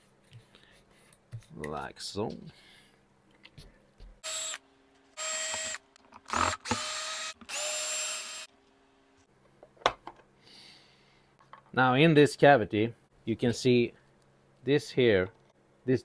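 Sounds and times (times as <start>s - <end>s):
electric screwdriver whirring: 4.2s - 4.6s, 5.2s - 8.5s.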